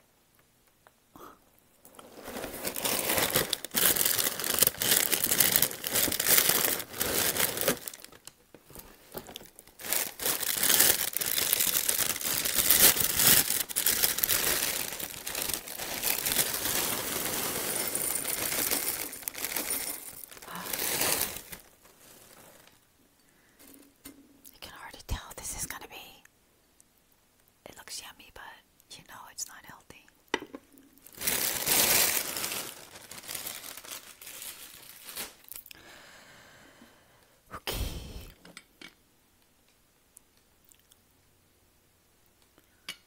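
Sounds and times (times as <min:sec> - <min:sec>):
plastic bag crinkling: 0:01.9 - 0:22.8, 0:31.0 - 0:35.8.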